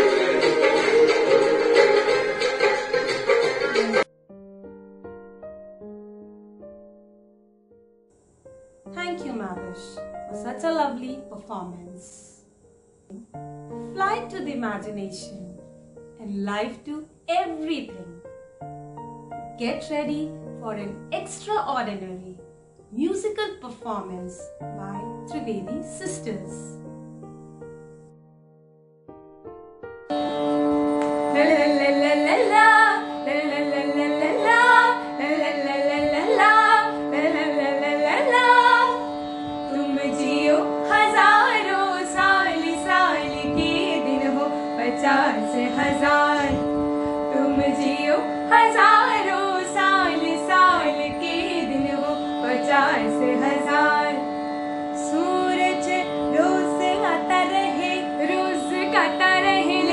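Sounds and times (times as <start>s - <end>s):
girls singing: 31.2s - 46.7s, 47.3s - 54.2s, 55.0s - 59.9s.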